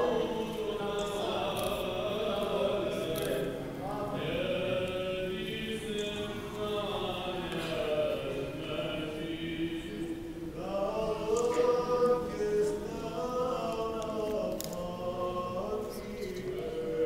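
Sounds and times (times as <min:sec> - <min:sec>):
choir chanting: 0:00.0 - 0:17.0.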